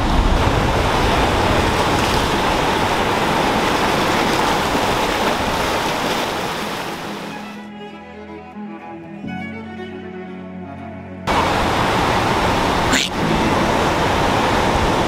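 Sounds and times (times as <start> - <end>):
waves washing over rocks: 0.0 - 7.4, 11.3 - 15.0.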